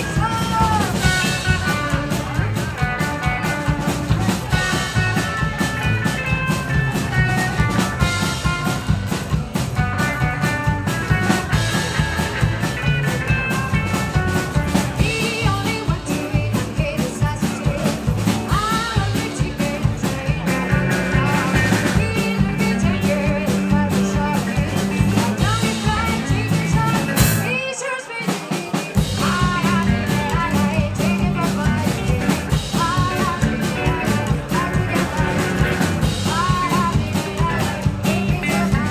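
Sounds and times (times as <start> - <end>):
woman singing: 0.0 - 2.1, 15.0 - 38.9
upright double bass: 0.0 - 27.5, 29.0 - 38.9
drums: 0.0 - 38.9
electric guitar: 0.0 - 38.9.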